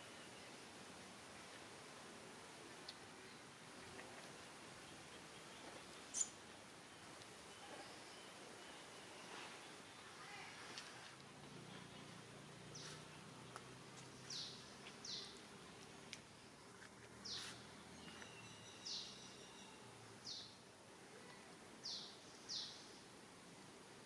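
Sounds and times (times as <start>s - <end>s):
faint background hiss: 0.0s - 24.0s
bird chirping: 4.8s - 10.1s, 11.9s - 15.4s, 17.2s - 20.6s.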